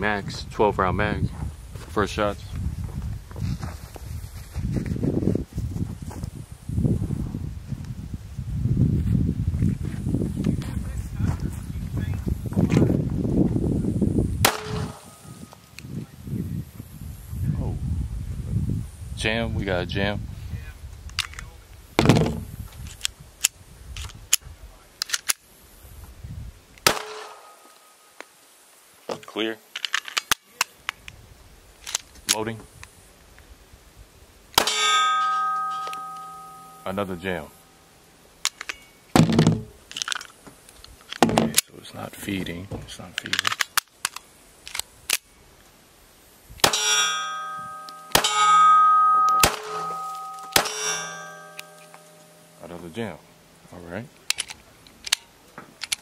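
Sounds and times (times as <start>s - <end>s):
pistol shots: 14.4s - 15.2s, 26.8s - 27.6s, 48.1s - 51.8s
steel plate target ringing: 14.5s - 15.4s, 26.9s - 28.1s, 34.6s - 37.8s, 46.6s - 53.0s
pistol clicks and clacks: 25.0s - 25.4s, 43.2s - 45.3s, 54.2s - 56.0s.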